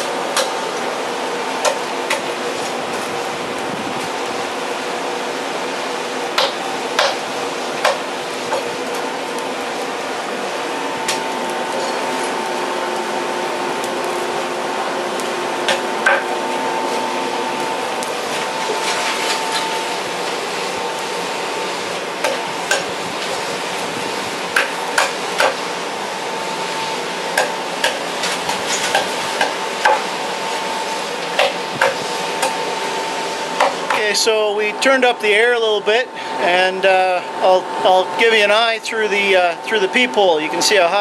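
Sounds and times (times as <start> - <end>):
charcoal being split: 11.0 - 21.2.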